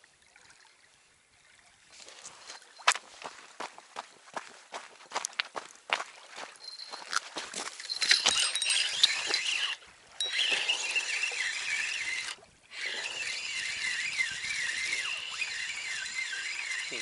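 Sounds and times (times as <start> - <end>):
fishing reel whirring squeal: 7.8 - 17.0.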